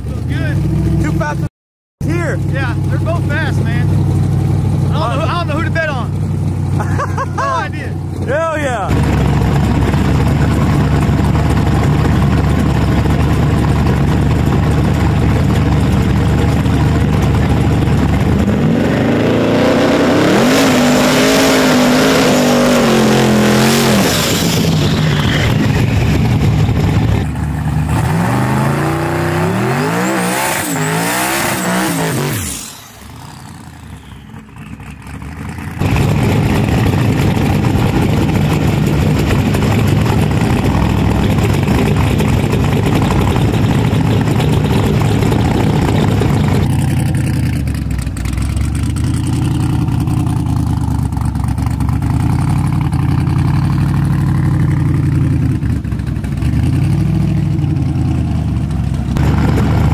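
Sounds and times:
racing engines revving: 15.7s - 46.8s.

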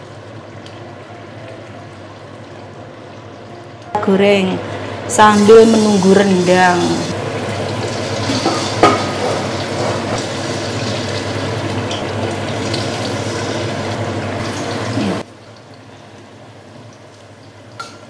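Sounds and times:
batter sizzling in hot oil: 5.2s - 18.0s.

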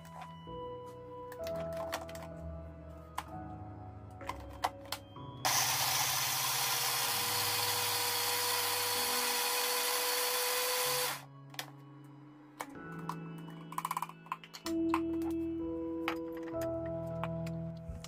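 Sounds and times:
electric blender whining: 5.4s - 11.3s.

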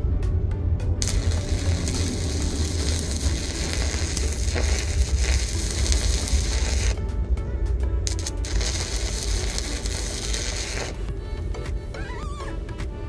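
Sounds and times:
arc welder crackling sizzle: 1.0s - 7.2s, 8.0s - 11.1s.

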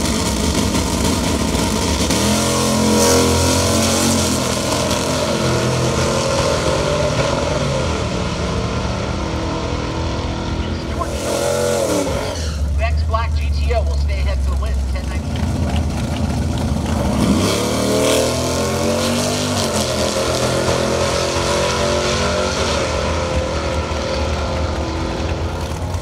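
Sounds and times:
muscle cars accelerating: 0.0s - 26.0s.

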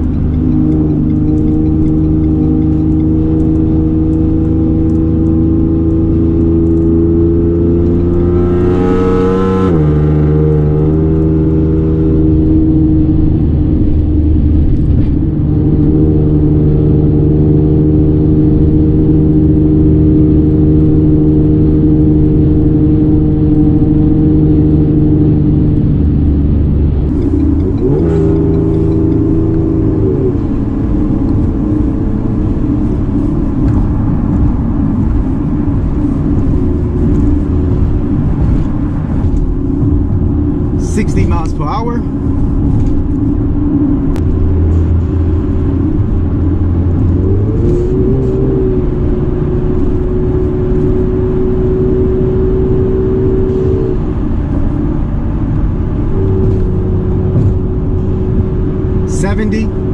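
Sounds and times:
loud car exhaust: 0.0s - 59.9s.

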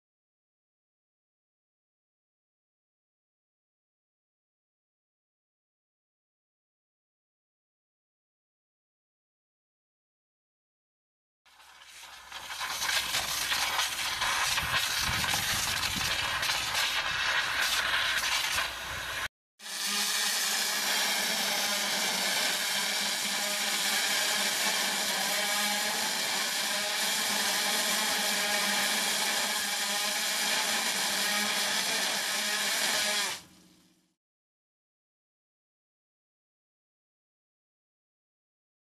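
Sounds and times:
water jet spray hissing: 11.5s - 19.3s
water jet hissing on concrete: 11.5s - 33.4s.

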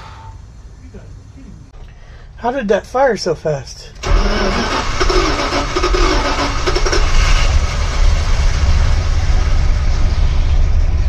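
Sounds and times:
car engine idling: 3.4s - 11.0s.

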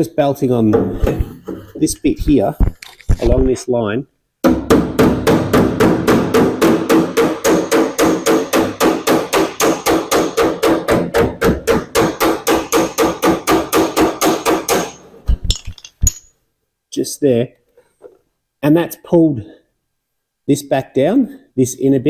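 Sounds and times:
hammer striking steel panel: 4.4s - 15.0s.

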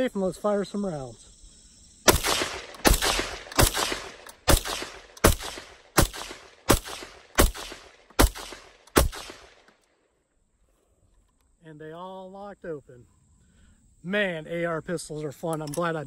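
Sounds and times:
rifle gunshots with echo: 2.1s - 9.6s.

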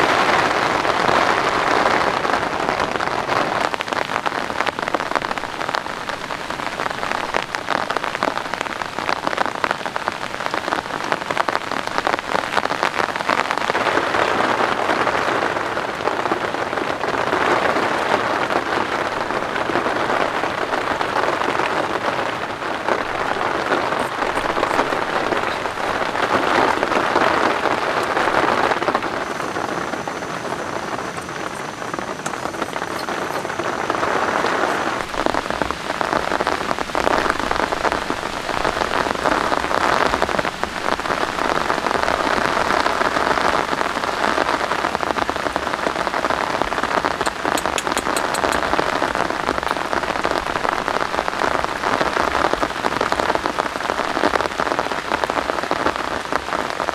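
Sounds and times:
heavy rain pouring: 0.0s - 56.9s.

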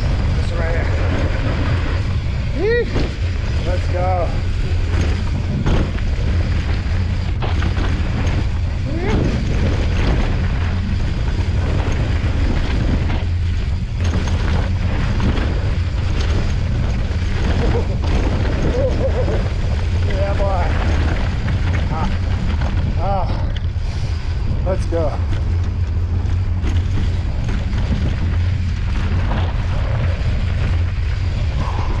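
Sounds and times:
bike rattling: 0.0s - 32.0s
bike tyre noise: 0.0s - 32.0s
wind on camera microphone: 0.0s - 32.0s.

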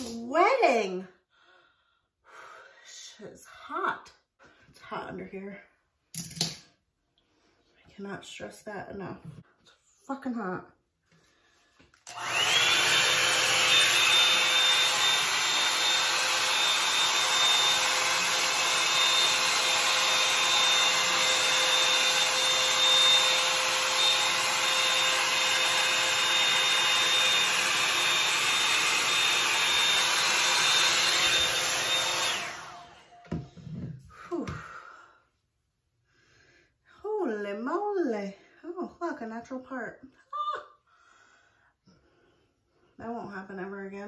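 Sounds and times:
hot-air brush motor whining: 12.0s - 34.6s.

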